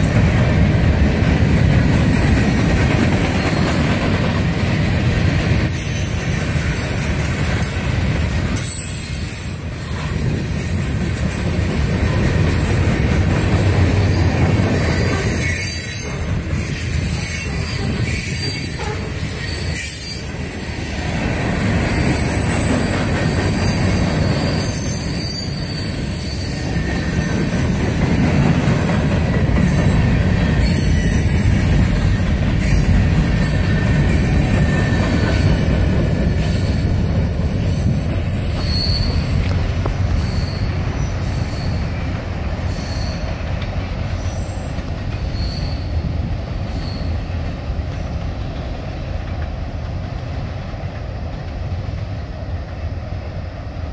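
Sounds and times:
freight train rumbling past: 0.0 - 53.9
high-pitched wheel squeal: 23.3 - 27.5, 37.7 - 43.3, 43.9 - 47.2.

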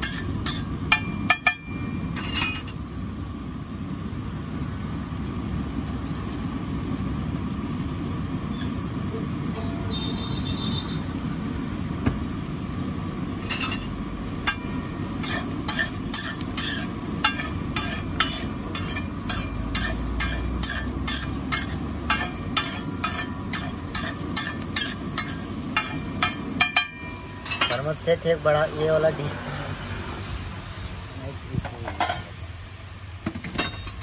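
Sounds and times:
metal spatula scraping a griddle: 0.0 - 2.8, 13.4 - 28.2
egg sizzling on a griddle: 0.0 - 29.4, 30.0 - 34.0.

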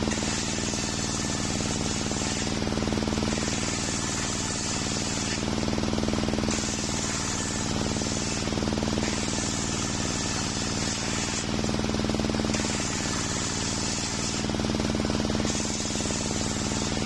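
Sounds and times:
sawmill motor pulsing: 0.0 - 17.0.

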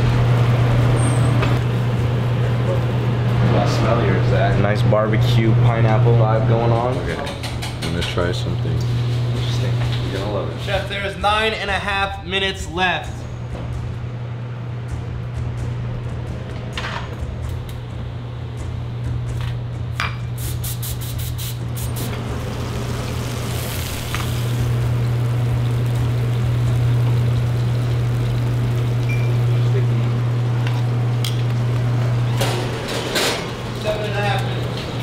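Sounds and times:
food sizzling: 20.3 - 35.0
low hum: 21.6 - 33.8.

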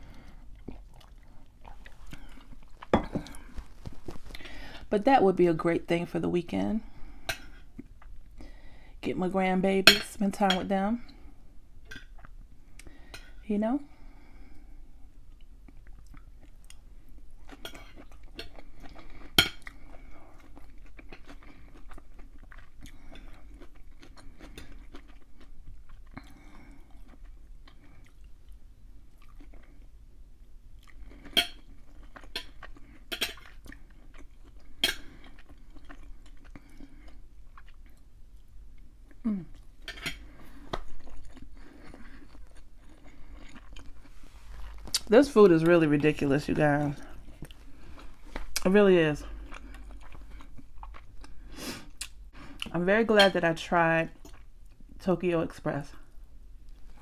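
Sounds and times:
close chewing: 0.1 - 4.6, 15.3 - 30.0, 30.8 - 48.7, 49.3 - 52.7.

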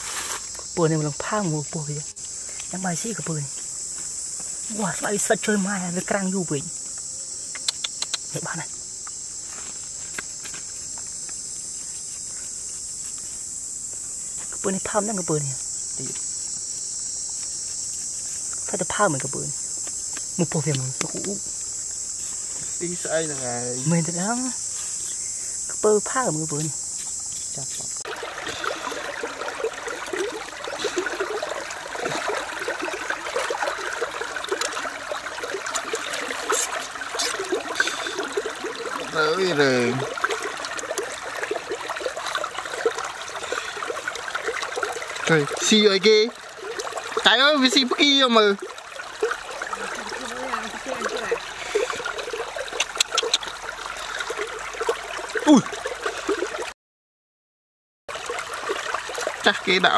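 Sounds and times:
sharp clicks: 7.5 - 8.3
water trickling and babbling: 20.3 - 24.5, 25.1 - 56.7, 58.1 - 59.9.

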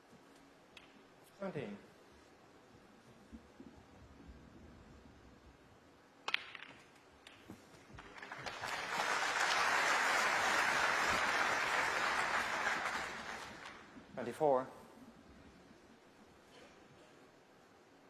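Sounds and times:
snooker balls clicking: 6.2 - 8.2
audience applause: 8.0 - 13.9.

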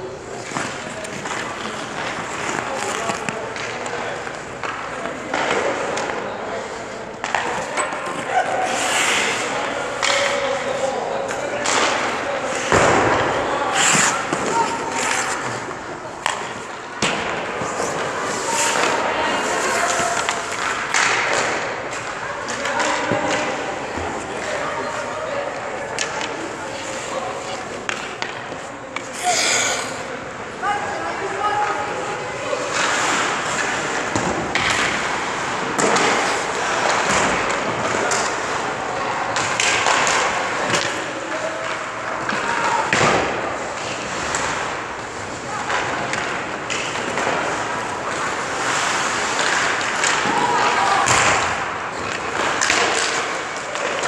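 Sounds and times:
skates scraping ice: 0.1 - 54.0
skate blades scraping ice: 7.4 - 9.9, 13.6 - 16.8, 17.4 - 21.1, 26.4 - 30.4, 43.9 - 50.1.

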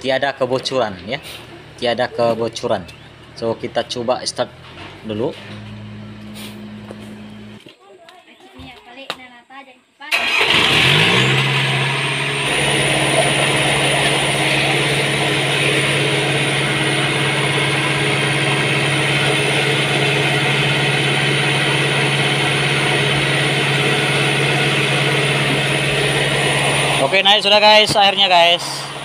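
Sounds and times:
diesel engine running: 0.4 - 7.6, 10.1 - 29.0
pump drawing water: 12.4 - 29.0.

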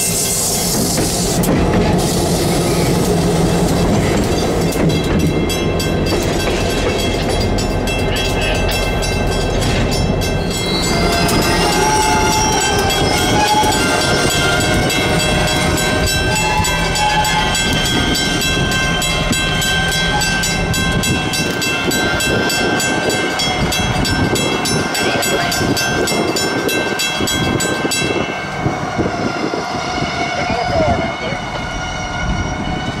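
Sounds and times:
train rolling on rails: 0.0 - 33.0
steady high ringing tones: 4.3 - 29.0.

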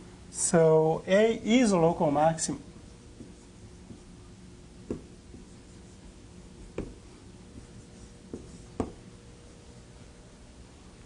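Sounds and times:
faint room hum: 0.0 - 11.0
chalk tapping on board: 3.1 - 4.2, 4.8 - 9.0.

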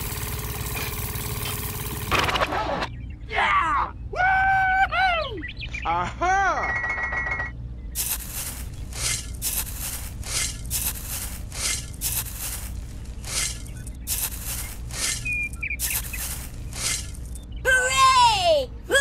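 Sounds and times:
rice grains pouring into basket: 14.1 - 15.1.

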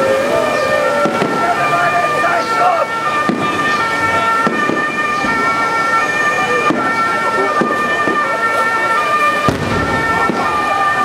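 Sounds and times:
fireworks bursting: 3.1 - 5.6, 6.6 - 8.3, 9.3 - 11.0.

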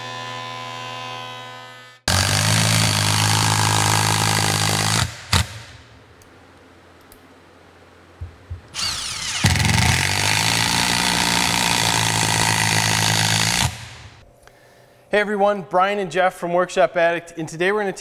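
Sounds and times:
impact driver hammering: 8.2 - 14.2.

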